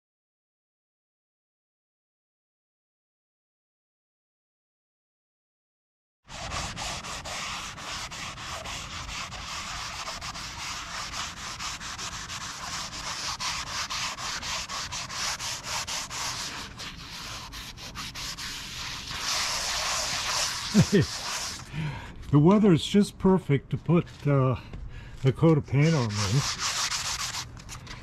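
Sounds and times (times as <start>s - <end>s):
sanding pad scrubbing metal: 6.3s - 21.7s, 25.8s - 27.5s.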